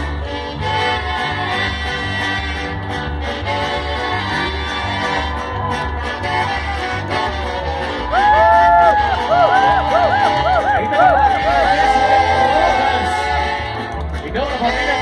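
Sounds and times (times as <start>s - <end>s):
live orchestra playing: 0.0s - 15.0s.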